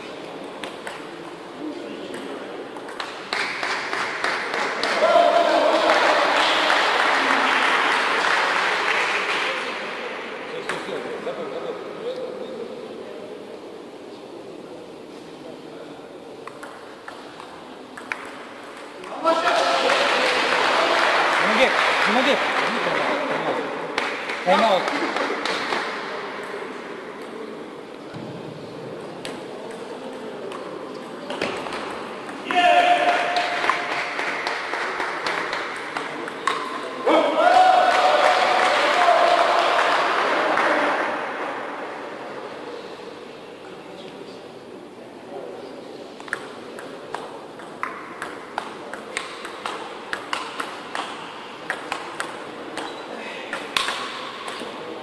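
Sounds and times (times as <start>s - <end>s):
hall background noise: 0.0s - 55.0s
ping pong ball hitting paddles: 16.4s - 19.2s, 29.2s - 37.0s, 46.2s - 54.8s
ping pong ball bouncing on table: 16.5s - 18.9s.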